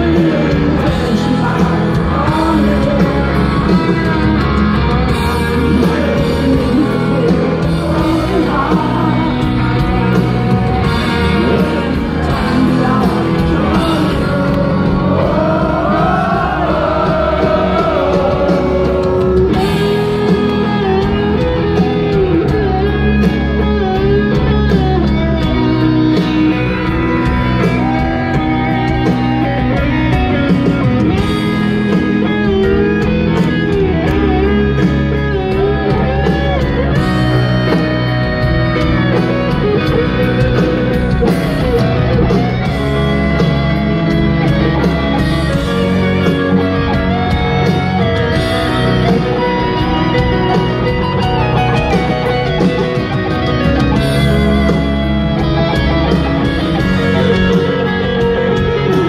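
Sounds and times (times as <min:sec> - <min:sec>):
lead vocal singing: 0:00.0 - 0:22.1
drums: 0:00.0 - 0:59.0
electric guitar: 0:00.0 - 0:59.0
piano: 0:00.0 - 0:59.0
rock band playing live: 0:00.0 - 0:59.0.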